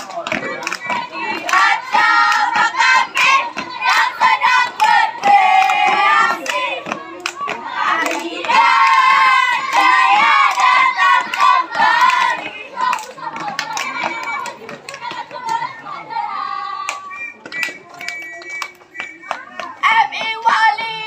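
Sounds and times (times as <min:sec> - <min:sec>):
sharp claps: 0:00.0 - 0:15.6, 0:16.8 - 0:21.0
children chanting in unison: 0:00.9 - 0:13.3.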